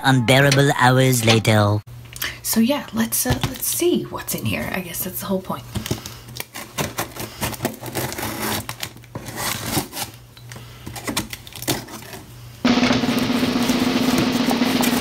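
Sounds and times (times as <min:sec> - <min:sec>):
knife slitting packing tape: 0:06.4 - 0:10.2.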